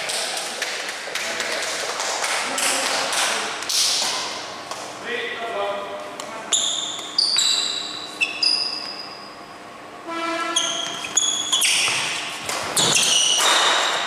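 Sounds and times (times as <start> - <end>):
shoe squeaks on court floor: 6.5 - 9.4, 10.4 - 14.0
high ringing tone: 6.6 - 9.4
racket hitting shuttlecock: 11.6 - 14.0.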